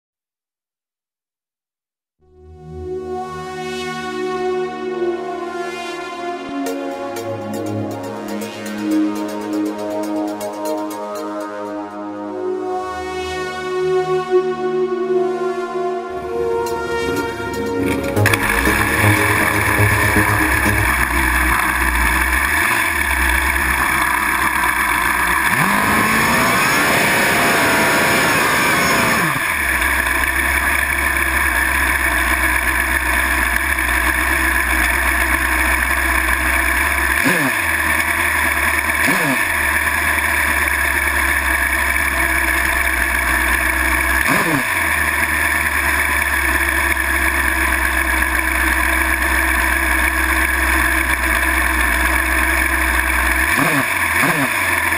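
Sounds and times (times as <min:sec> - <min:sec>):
motorcycle engine idling and revving: 0:17.8 - 0:54.9.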